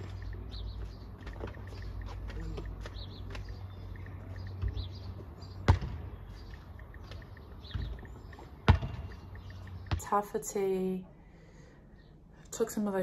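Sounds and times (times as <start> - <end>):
birds chirping: 0.0 - 13.0
basketball bouncing on hard court: 5.6 - 6.2, 7.0 - 10.2.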